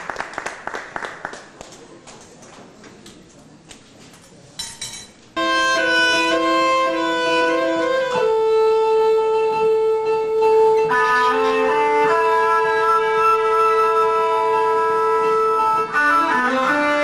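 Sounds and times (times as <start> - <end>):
keyboard: 5.4 - 17.0
saxophone: 5.4 - 17.0.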